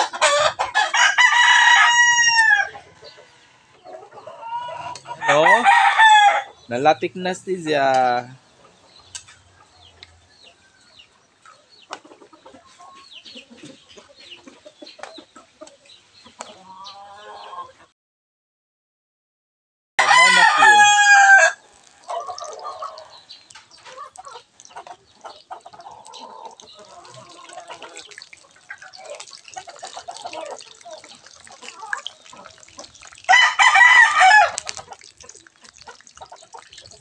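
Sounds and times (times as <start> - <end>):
rooster crowing: 0.2 - 2.8, 4.6 - 6.6, 20.0 - 21.6, 33.3 - 34.6
chicken clucking: 2.7 - 5.2, 8.6 - 17.9, 22.0 - 33.4
frying in oil crackle and sizzle: 20.0 - 37.0.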